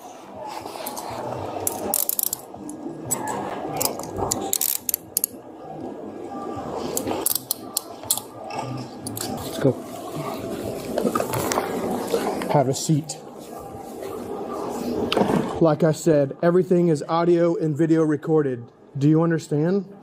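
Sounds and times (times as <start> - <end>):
muffled clothing rustle: 0.0 - 1.6, 8.6 - 15.6
handcuffs ratcheting clicks: 1.7 - 2.4, 3.8 - 5.3, 7.0 - 8.3.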